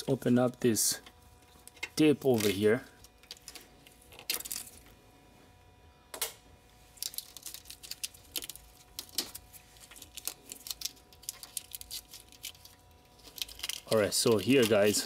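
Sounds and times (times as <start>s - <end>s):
faint steady hum: 0.0s - 15.0s
tape peeling clicks and crackles: 1.5s - 4.9s, 7.0s - 15.0s.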